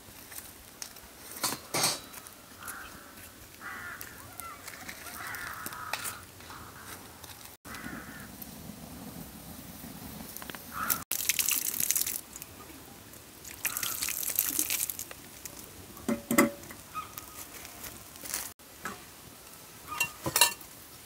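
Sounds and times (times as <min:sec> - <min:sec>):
metal pot clanking: 0:01.4 - 0:02.2, 0:16.0 - 0:16.8, 0:19.9 - 0:20.7.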